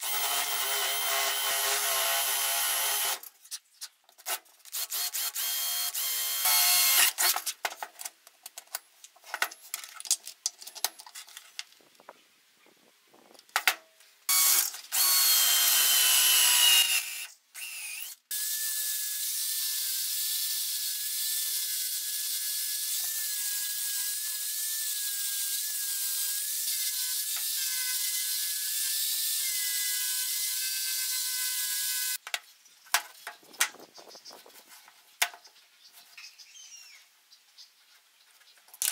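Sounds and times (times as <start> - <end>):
cordless drill boring into wood: 0.0 - 3.3, 4.7 - 7.4, 14.3 - 32.2.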